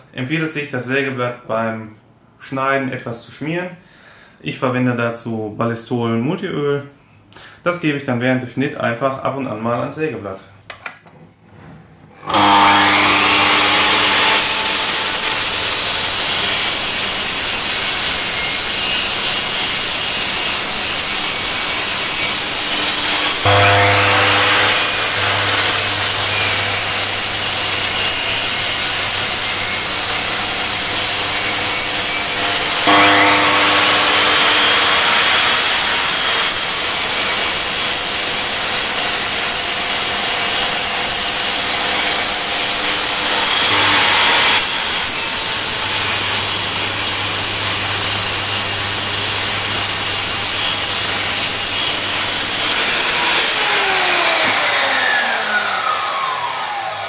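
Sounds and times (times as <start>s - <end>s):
mitre saw cutting aluminium: 12.2s - 57.0s.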